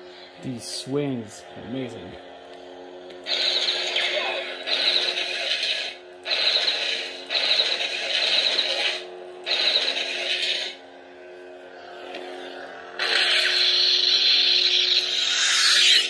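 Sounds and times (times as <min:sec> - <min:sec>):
lightsaber electric hum: 0:00.0 - 0:16.0
harsh crackling sound effects: 0:03.1 - 0:10.8, 0:12.0 - 0:16.0.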